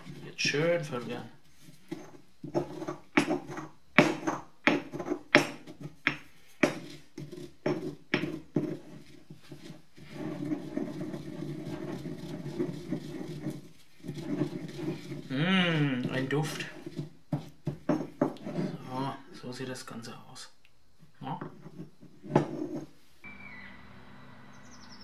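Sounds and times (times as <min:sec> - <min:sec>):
pestle grinding round bowl: 0:00.0 - 0:01.0, 0:01.8 - 0:18.7
pestle pounding in stone mortar: 0:01.9 - 0:08.9.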